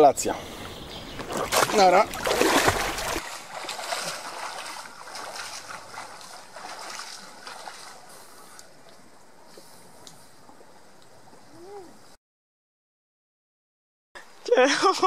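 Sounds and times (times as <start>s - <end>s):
swimming strokes splashing: 1.2s - 8.6s
loud water splash: 1.3s - 8.0s.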